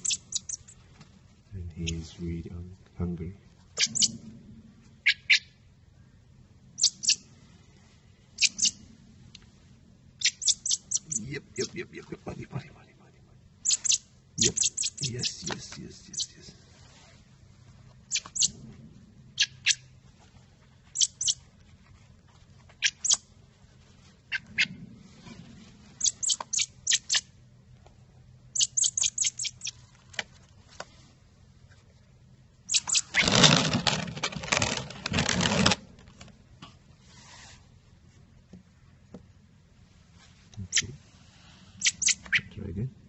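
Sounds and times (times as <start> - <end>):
fledgling bird begging chirps: 0.0 - 0.7, 3.8 - 4.2, 5.0 - 5.6, 6.8 - 7.3, 8.4 - 8.8, 10.2 - 11.8, 13.6 - 16.4, 18.1 - 18.6, 19.4 - 19.9, 20.9 - 21.4, 22.8 - 23.2, 26.0 - 27.2, 28.5 - 29.8, 41.8 - 42.5.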